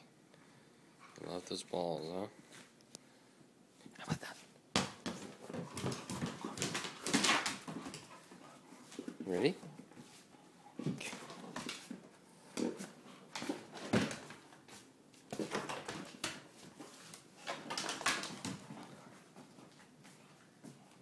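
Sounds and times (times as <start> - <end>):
ball knocking on wooden floor: 4.7 - 8.1.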